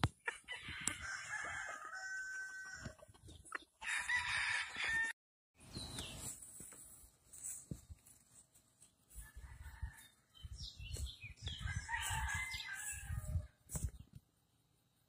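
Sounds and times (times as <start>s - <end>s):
roosters crowing: 0.2s - 3.1s, 3.8s - 5.2s, 9.1s - 10.6s, 11.4s - 13.6s.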